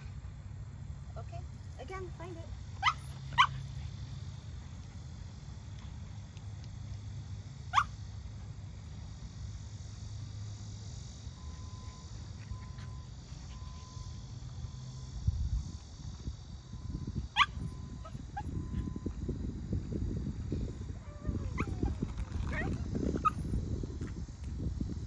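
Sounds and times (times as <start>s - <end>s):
low background rumble: 0.0s - 25.0s
small dog yipping: 2.8s - 3.7s, 7.7s - 7.9s, 17.4s - 18.6s, 21.0s - 23.4s.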